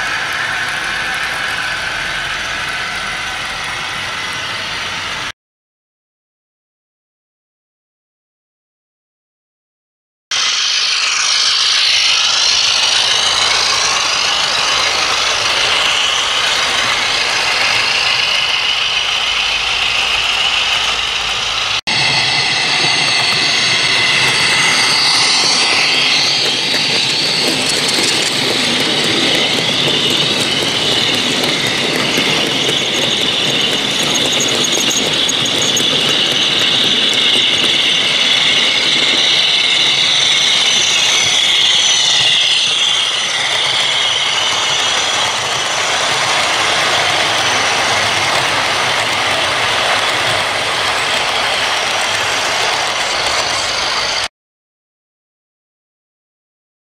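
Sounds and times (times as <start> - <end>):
model diesel engine sound: 10.4 - 42.4.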